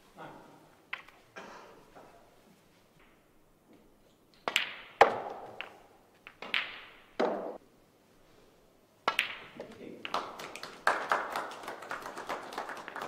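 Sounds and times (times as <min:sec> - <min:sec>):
snooker balls clicking: 0:00.9 - 0:01.2, 0:04.3 - 0:07.6, 0:09.0 - 0:10.8
cue striking ball: 0:04.5 - 0:07.6.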